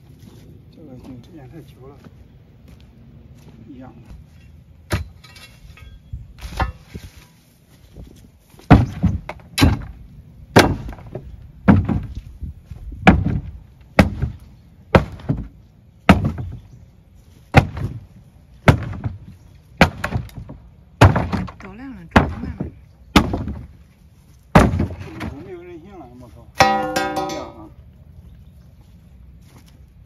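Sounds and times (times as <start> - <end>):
iron bar striking wooden boards: 8.7 - 12.2, 13.0 - 16.6, 17.5 - 18.0, 18.6 - 19.2, 19.8 - 23.7, 24.5 - 25.4, 26.6 - 27.7.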